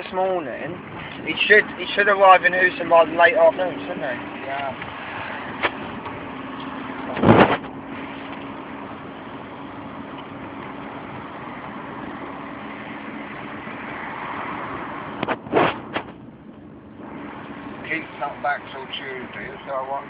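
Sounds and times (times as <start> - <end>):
car running heard from cabin: 0.0 - 20.0
loud thump: 7.1 - 7.7.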